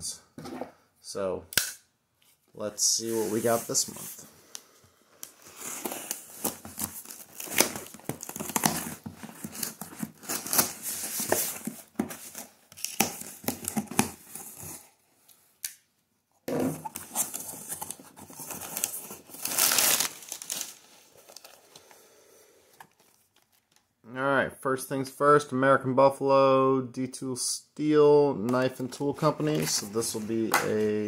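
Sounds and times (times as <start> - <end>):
plastic bags rustling and crinkling: 17.1 - 21.8.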